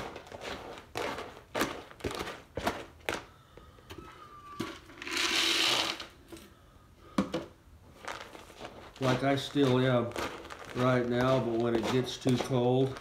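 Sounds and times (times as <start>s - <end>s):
metal utensil scraping plastic bowl: 4.6s - 6.1s
dry cat food pouring: 8.0s - 13.0s.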